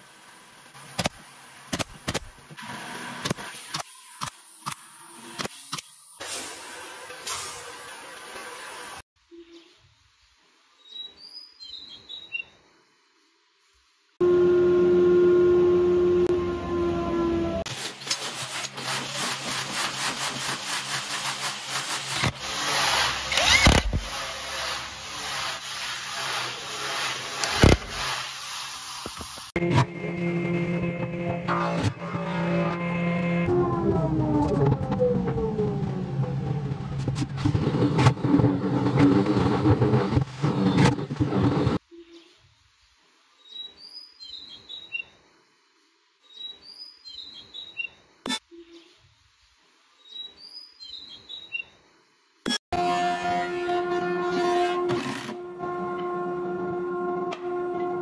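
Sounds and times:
impact driver driving screws: 22.1s - 24.3s
music: 29.6s - 33.6s.

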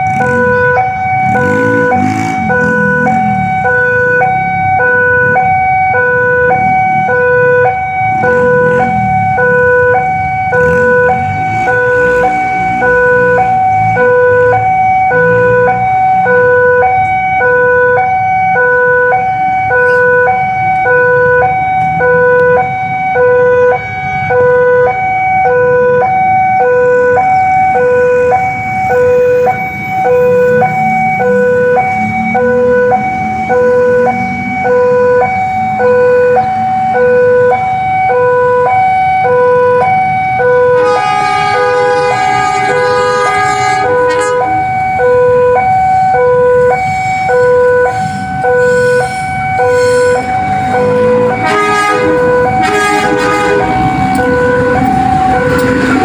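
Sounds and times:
level crossing two-tone alarm: 0.0s - 56.0s
road vehicle engines rumbling: 0.0s - 56.0s.

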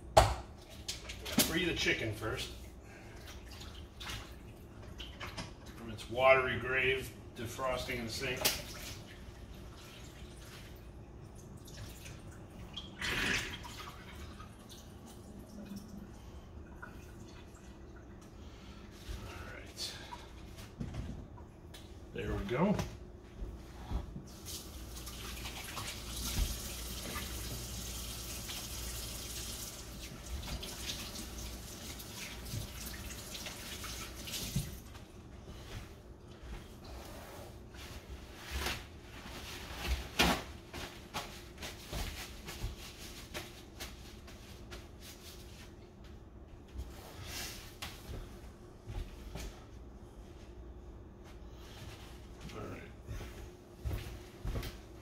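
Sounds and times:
kitchen tap running: 24.3s - 35.0s.

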